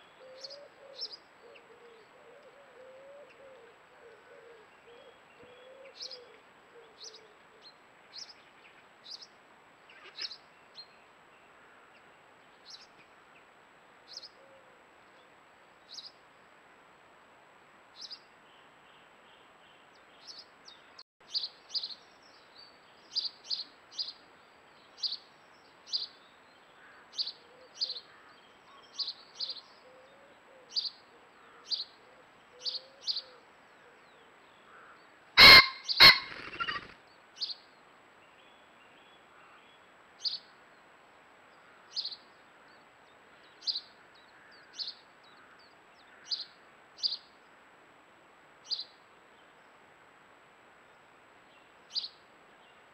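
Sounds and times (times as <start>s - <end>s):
pheasant crowing: 34.7s - 37.0s
small bird chirping: 35.8s - 37.6s.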